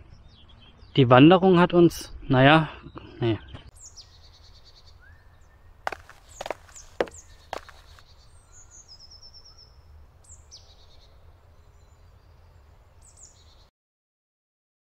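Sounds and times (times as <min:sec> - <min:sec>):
songbirds chirping: 0:00.0 - 0:13.7.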